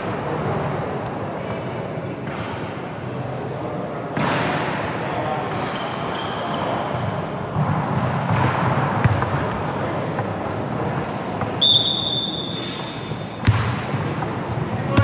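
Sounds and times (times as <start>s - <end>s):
sneaker squeaks: 3.3s - 4.2s, 5.0s - 13.6s
basketball bouncing on court: 7.6s - 10.4s, 13.3s - 15.0s.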